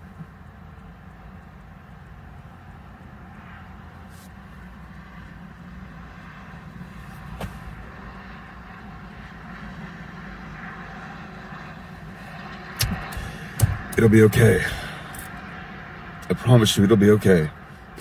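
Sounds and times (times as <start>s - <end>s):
low vehicle rumble in car: 0.0s - 18.0s
sharp click: 12.8s - 14.0s.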